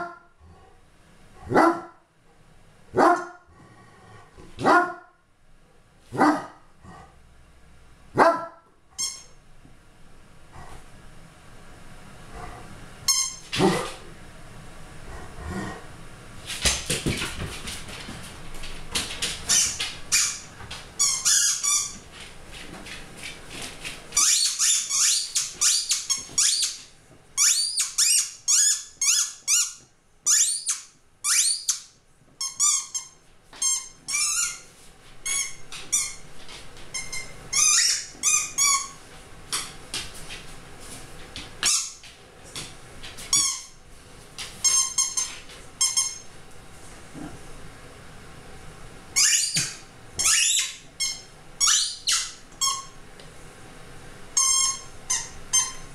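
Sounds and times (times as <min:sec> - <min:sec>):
squeaky rubber dog toy: 0:09.0 - 0:09.4, 0:13.1 - 0:13.5, 0:21.0 - 0:22.0, 0:24.2 - 0:26.8, 0:27.4 - 0:34.6, 0:37.0 - 0:39.0, 0:44.6 - 0:46.2, 0:49.2 - 0:53.0, 0:54.4 - 0:55.9.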